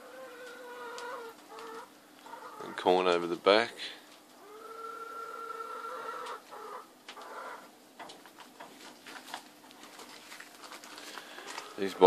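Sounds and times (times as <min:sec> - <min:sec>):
chicken calling: 0:00.0 - 0:03.0, 0:04.4 - 0:07.7.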